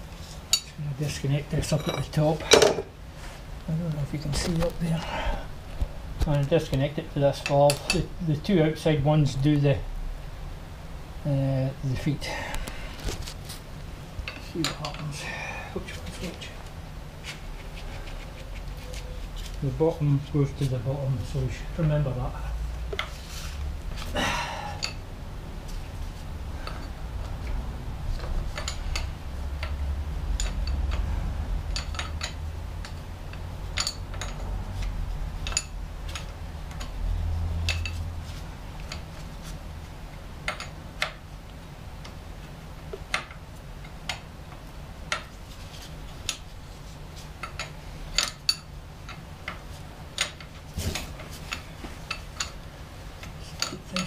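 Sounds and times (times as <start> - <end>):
hand tools clinking on metal: 1.7 - 2.9.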